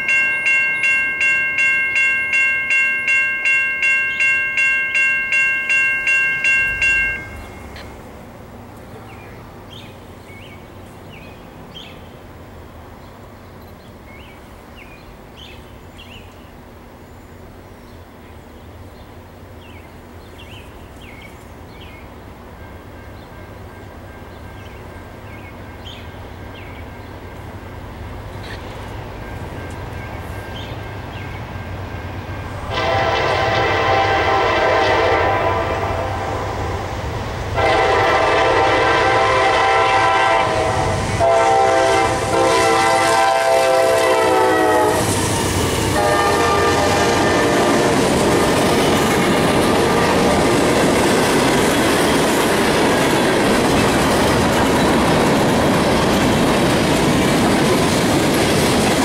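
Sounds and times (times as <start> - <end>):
train wheel rumble: 0.0 - 59.0
locomotive air horn: 32.7 - 36.9, 37.6 - 48.4
wheels clacking over rail joints: 45.0 - 59.0.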